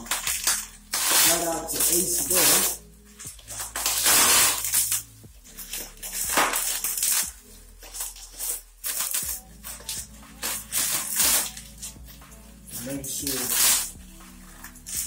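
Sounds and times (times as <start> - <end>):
plastic packaging crinkling: 0.0 - 11.9
faint background music: 0.0 - 15.0.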